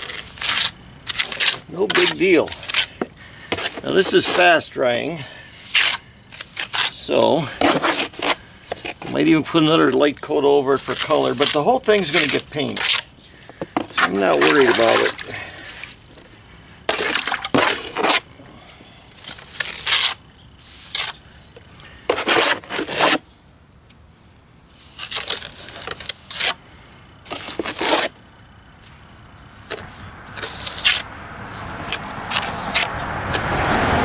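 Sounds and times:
trowel scraping plaster: 0.0 - 4.7, 5.5 - 10.0, 10.7 - 13.0, 13.8 - 16.0, 16.9 - 18.3, 19.3 - 21.2, 22.1 - 23.3, 24.8 - 26.6, 27.3 - 28.2, 29.5 - 32.9.

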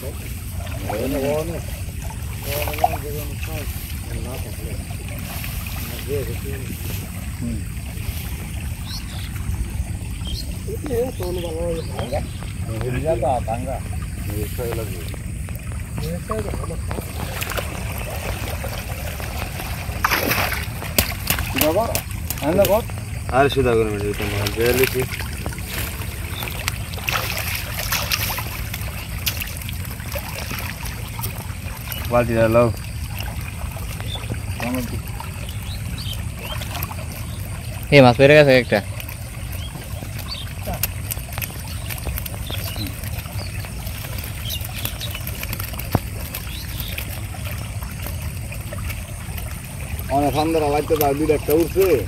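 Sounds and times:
water trickling and splashing: 0.0 - 52.0
steady low rumble: 1.5 - 32.0.

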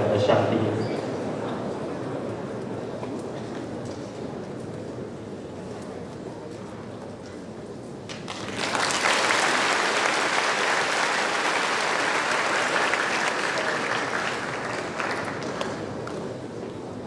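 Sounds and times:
audience applauding: 8.1 - 16.2.

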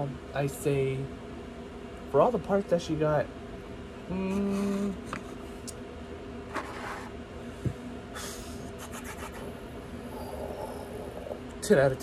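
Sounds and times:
man humming: 4.0 - 5.2, 10.0 - 11.5.

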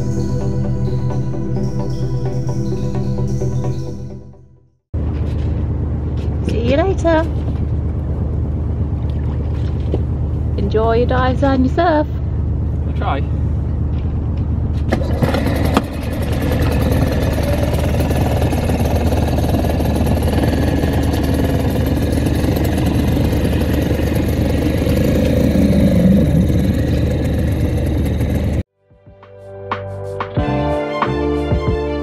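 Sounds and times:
outboard motor running: 6.5 - 28.6.

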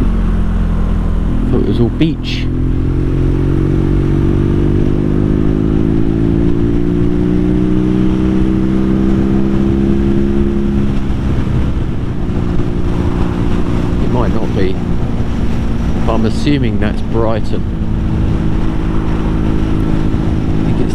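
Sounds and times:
motorcycle engine accelerating: 0.0 - 20.9.

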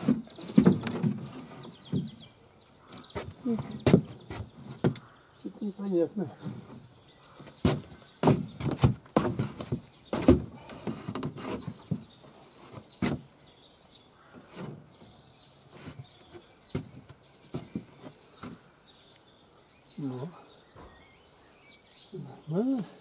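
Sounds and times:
knocks and thuds on wood: 0.0 - 2.2, 2.9 - 5.1, 7.4 - 12.2, 13.0 - 13.3, 16.7 - 18.6
faint bird chirps: 11.5 - 23.0.

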